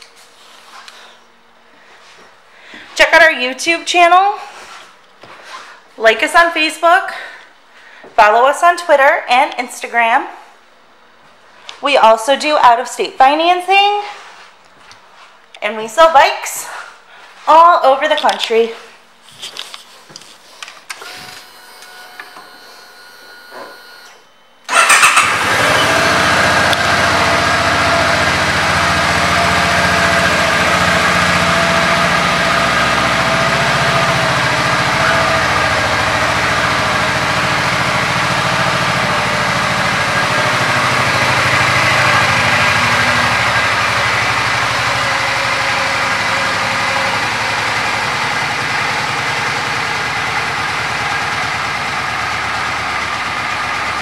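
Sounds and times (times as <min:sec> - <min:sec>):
motorcycle engine starting and idling: 0:24.7 - 0:54.0.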